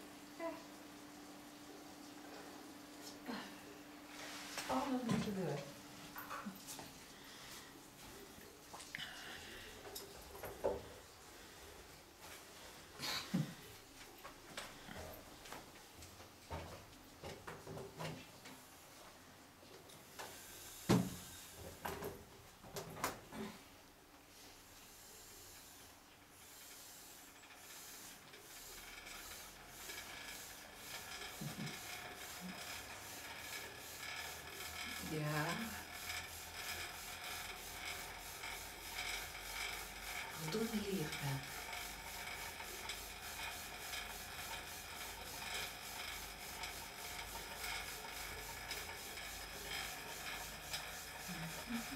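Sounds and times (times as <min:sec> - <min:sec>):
fabric rubbing on microphone: 0:04.1 - 0:08.2, 0:26.6 - 0:51.9
exercise bike flywheel whirring: 0:20.0 - 0:22.3, 0:24.3 - 0:51.9
regular rasping: 0:26.5 - 0:51.9.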